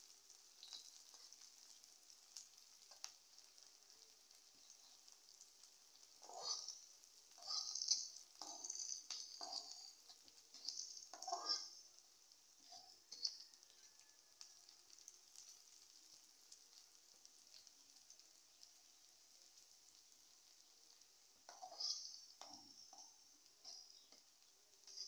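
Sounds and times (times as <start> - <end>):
vegetables frying in oil: 0.0 - 25.0
metal spatula scraping pan: 6.2 - 11.9, 12.6 - 13.5, 21.5 - 24.1.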